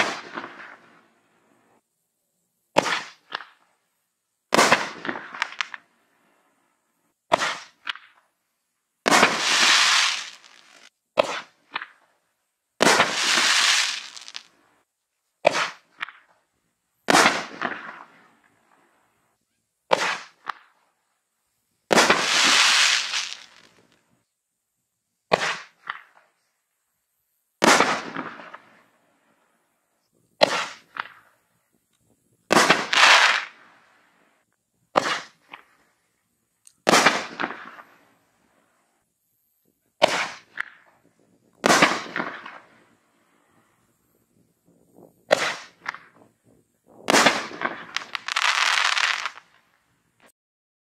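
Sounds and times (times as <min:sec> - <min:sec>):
firework launch reports: 0:00.0 - 0:01.5, 0:02.7 - 0:03.7, 0:04.5 - 0:05.9, 0:07.3 - 0:08.0, 0:09.0 - 0:12.0, 0:12.8 - 0:14.6, 0:15.4 - 0:16.3, 0:17.1 - 0:18.9, 0:19.9 - 0:20.7, 0:21.9 - 0:24.0, 0:25.3 - 0:26.3, 0:27.6 - 0:28.9, 0:30.3 - 0:31.5, 0:32.5 - 0:34.2, 0:34.9 - 0:35.8, 0:36.8 - 0:38.1, 0:40.0 - 0:43.9, 0:44.7 - 0:49.5
firework bursts overhead: 0:00.0 - 0:01.8, 0:02.7 - 0:03.8, 0:04.5 - 0:06.6, 0:07.2 - 0:08.3, 0:09.0 - 0:12.2, 0:12.8 - 0:14.8, 0:15.4 - 0:16.4, 0:17.0 - 0:19.2, 0:19.9 - 0:20.9, 0:21.9 - 0:24.1, 0:25.3 - 0:26.4, 0:27.6 - 0:29.5, 0:30.4 - 0:36.0, 0:36.8 - 0:39.0, 0:40.0 - 0:50.3
firework crackle: 0:00.0 - 0:01.8, 0:02.7 - 0:03.8, 0:04.5 - 0:06.6, 0:07.3 - 0:08.3, 0:09.0 - 0:12.2, 0:12.8 - 0:19.2, 0:19.9 - 0:20.9, 0:21.9 - 0:24.1, 0:25.3 - 0:26.4, 0:27.6 - 0:29.5, 0:30.4 - 0:31.6, 0:32.5 - 0:36.0, 0:36.7 - 0:39.0, 0:40.0 - 0:50.3.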